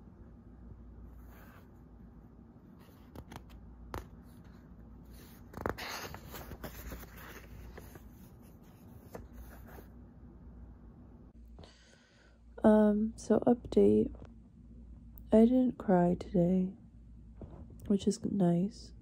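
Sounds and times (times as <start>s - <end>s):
book pages turning: 2.7s - 9.9s.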